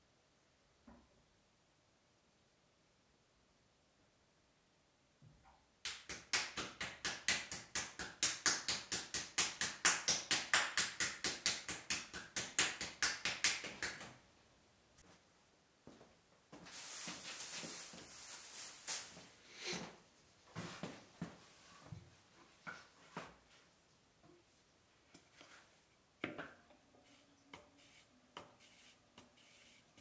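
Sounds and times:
hands slapping clay: 5.8 - 14.2
steady hiss: 16.5 - 20.1.

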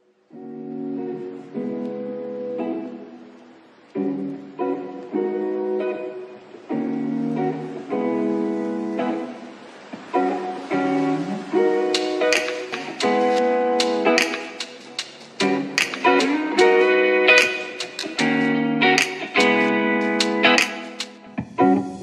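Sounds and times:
acoustic guitar strumming chords: 10.0 - 22.0.

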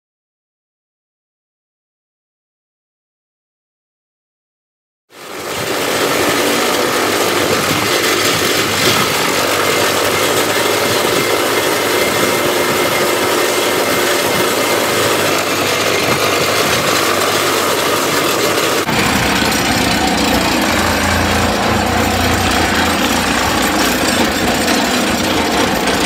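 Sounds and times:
excavator engine: 5.1 - 26.0
pile driver buzzing: 5.7 - 26.0.

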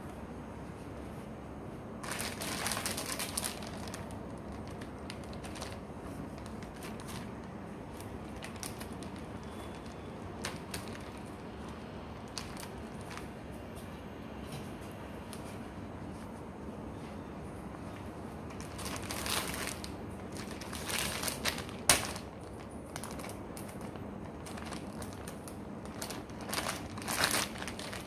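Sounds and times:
plastic bag crinkling: 2.0 - 13.4, 18.5 - 28.0.

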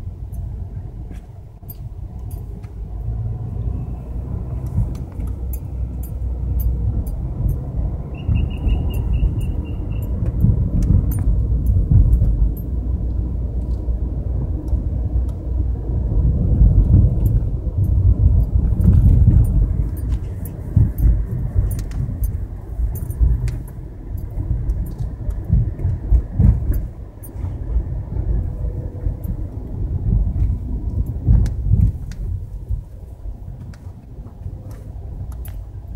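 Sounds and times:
car road noise rumble: 0.0 - 35.9
high pulsed beeping: 5.5 - 10.2
light ticks: 16.9 - 27.6, 30.3 - 32.8, 33.6 - 35.9.

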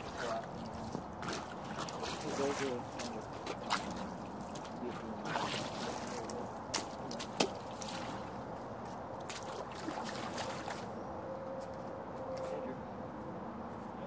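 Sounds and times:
creek trickling: 0.0 - 11.0.

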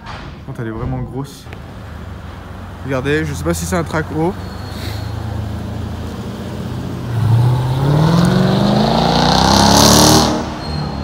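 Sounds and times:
car engine accelerating hard: 5.1 - 11.0.

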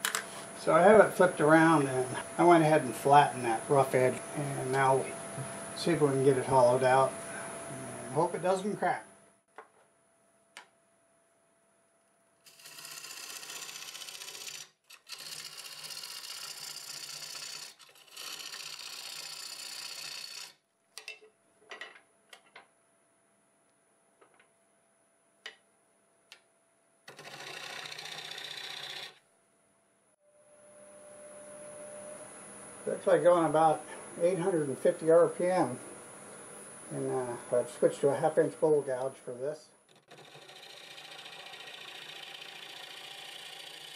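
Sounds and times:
gouge cutting wood on lathe: 12.5 - 20.6, 27.1 - 29.2, 39.9 - 43.9
lathe whine: 12.5 - 20.6, 27.1 - 29.2, 39.9 - 43.9.

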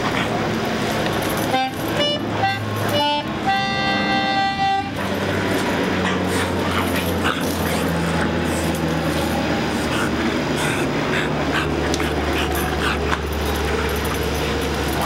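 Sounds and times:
concertina chord: 1.5 - 5.1.

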